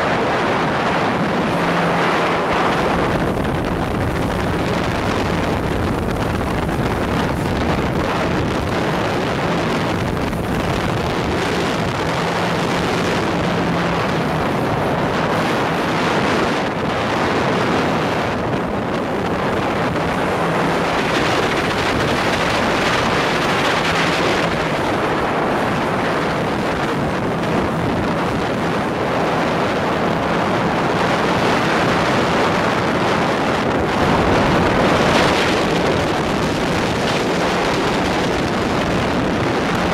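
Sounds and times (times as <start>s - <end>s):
speedboat engine drone: 0.0s - 39.9s
water rushing along hull: 0.0s - 39.9s
wind buffeting on microphone: 0.0s - 39.9s.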